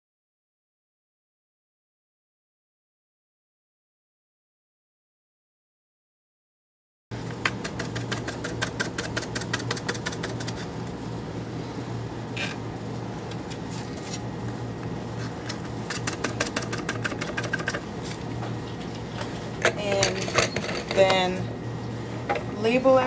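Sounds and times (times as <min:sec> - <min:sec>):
stirrer motor hum: 0:07.1 - 0:22.8.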